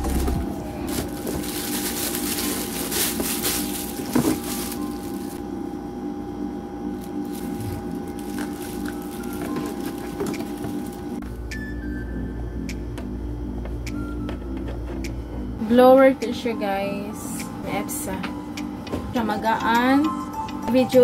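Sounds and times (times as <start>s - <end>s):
cardboard and plastic crinkling: 0.0s - 5.4s, 7.0s - 11.2s.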